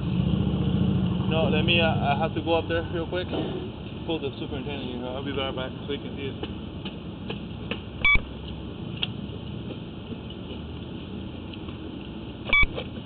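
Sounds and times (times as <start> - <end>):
short electronic beeps: 8.0 - 8.3, 12.5 - 12.8.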